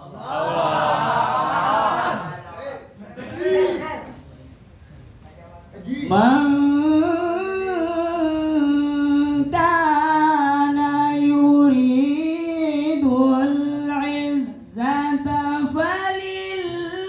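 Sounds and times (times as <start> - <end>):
young man reciting melodically: 5.8 - 17.0.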